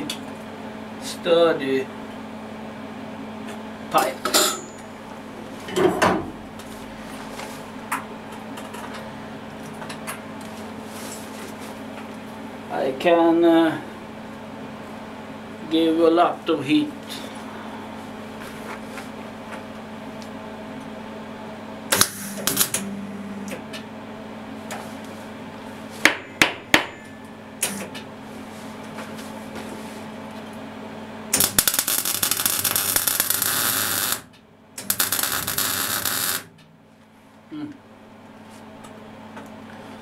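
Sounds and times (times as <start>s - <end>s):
steady hum: 0.0s - 40.0s
welding arc crackling: 22.0s - 22.8s, 31.3s - 36.6s.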